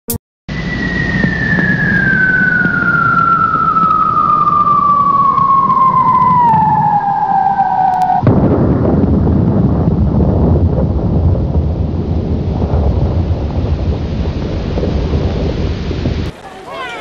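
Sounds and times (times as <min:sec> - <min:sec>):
whistle-like tone sliding down: 0:00.5 - 0:08.2
loud low rumble: 0:00.5 - 0:16.4
rushing noise: 0:00.5 - 0:17.0.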